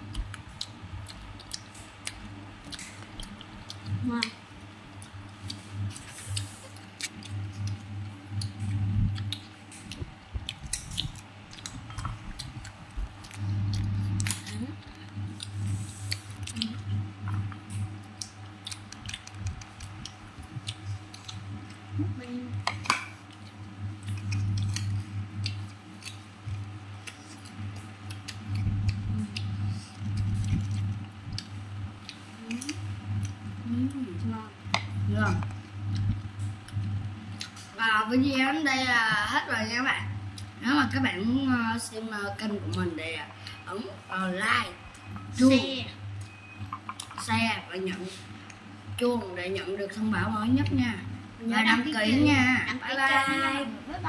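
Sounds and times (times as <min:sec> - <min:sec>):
low hum: 0:00.0 - 0:54.0
crunchy chewing: 0:05.0 - 0:21.9, 0:22.7 - 0:33.5
crunchy biting and chewing: 0:23.3 - 0:33.4.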